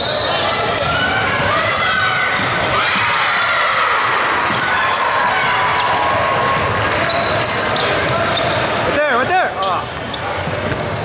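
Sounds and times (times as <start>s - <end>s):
hubbub of voices: 0.0s - 11.0s.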